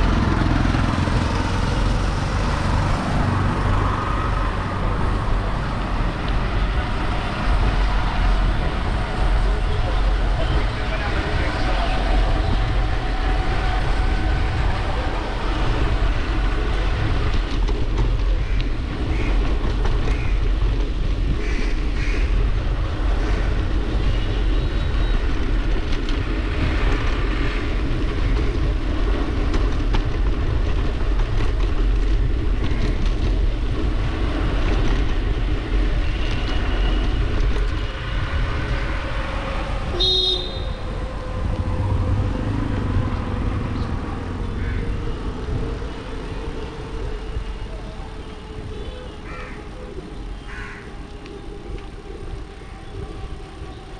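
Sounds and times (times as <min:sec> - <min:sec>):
wind rushing over microphone: 0:00.0 - 0:48.8
bicycle rolling on wet street: 0:11.5 - 0:39.9, 0:40.5 - 0:53.9.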